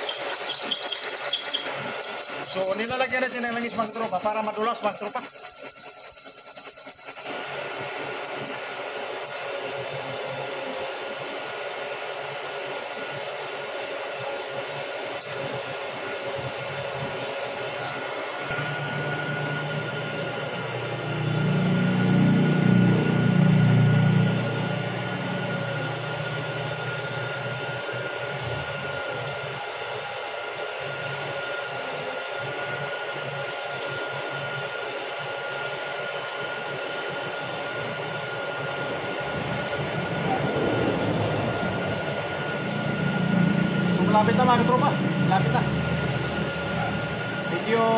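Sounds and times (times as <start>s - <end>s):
faint squeal: 0.0s - 9.6s, 15.0s - 18.2s
milling machine drilling steel: 0.0s - 47.9s.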